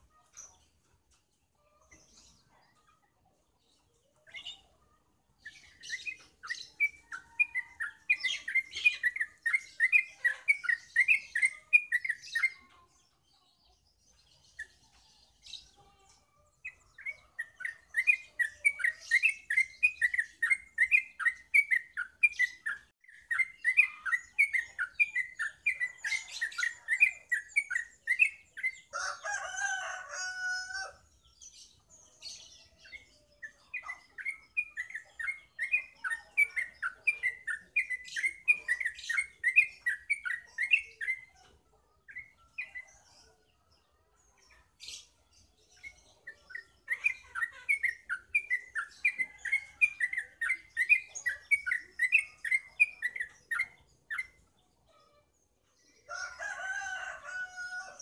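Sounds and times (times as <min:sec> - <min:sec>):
bird singing fast chirps: 0:16.5 - 0:28.9, 0:32.3 - 0:43.0, 0:44.5 - 0:54.7
rooster crowing: 0:28.9 - 0:31.0, 0:56.1 - 0:58.0.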